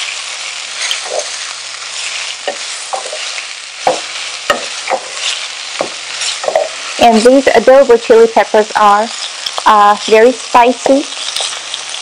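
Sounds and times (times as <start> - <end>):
food sizzling in oil: 0.0 - 12.0
wooden spatula stirring: 0.5 - 7.3
spatula knocking against pot: 3.9 - 5.2.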